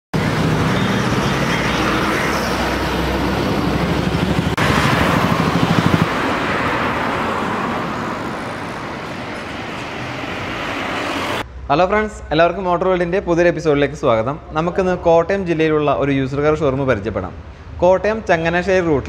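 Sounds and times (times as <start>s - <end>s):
traffic noise: 0.1s - 19.0s
motorcycle passing close by: 0.2s - 11.4s
bus and truck passing: 0.2s - 11.7s.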